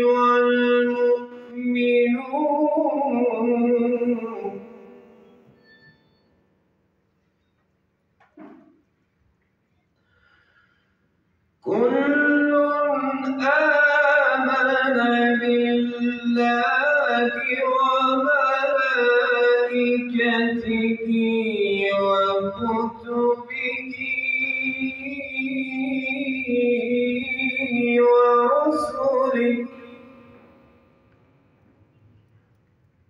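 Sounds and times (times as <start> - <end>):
man reciting melodically: 0.0 - 5.0, 11.6 - 30.7.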